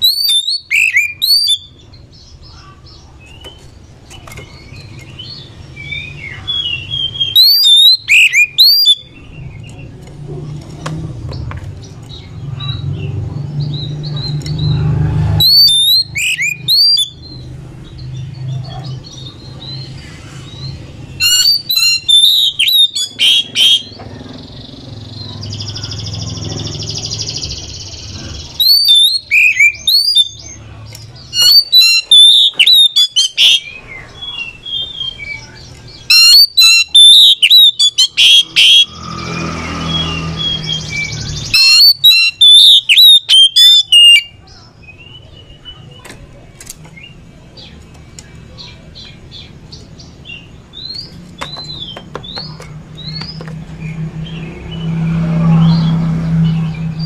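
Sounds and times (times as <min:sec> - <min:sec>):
bird singing whistles and chirps: 0:00.0 - 0:01.9, 0:04.4 - 0:09.8, 0:15.4 - 0:17.4, 0:19.1 - 0:24.0, 0:24.6 - 0:30.6, 0:31.2 - 0:45.8.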